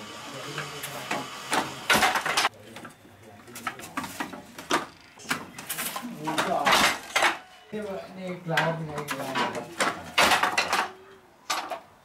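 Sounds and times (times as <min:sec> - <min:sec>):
wooden loom knocking and clattering: 0:06.3 - 0:07.4, 0:08.5 - 0:11.8.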